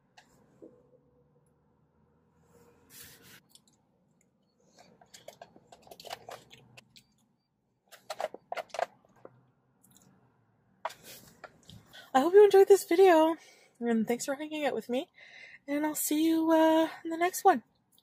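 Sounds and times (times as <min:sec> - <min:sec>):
chewing ice cream: 0:04.8 - 0:07.4.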